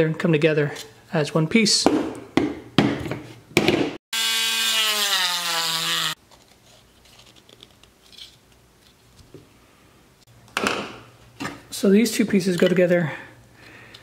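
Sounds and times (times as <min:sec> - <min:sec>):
rotary tool grinding whine: 0:04.2 - 0:06.2.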